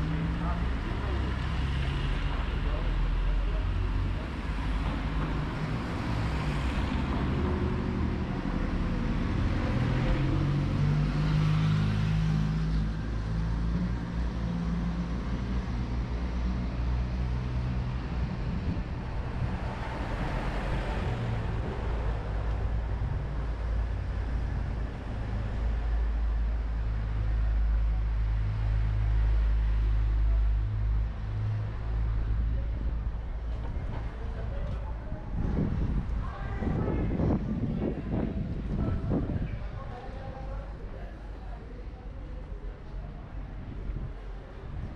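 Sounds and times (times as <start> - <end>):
cars passing by: 0.0 - 44.9
low engine rumble: 11.8 - 44.9.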